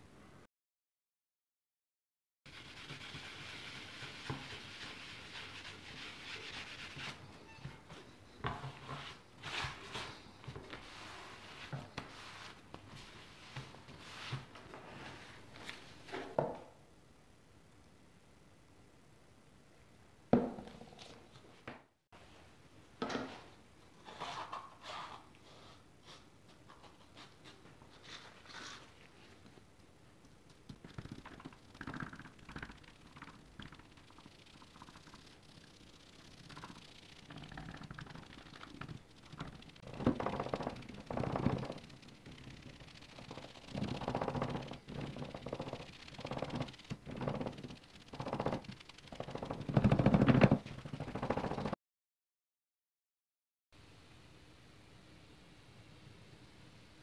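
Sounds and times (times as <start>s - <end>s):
hand sanding strokes: 2.5s - 7.3s
sponge scuffs and dabs: 8.6s - 16.1s.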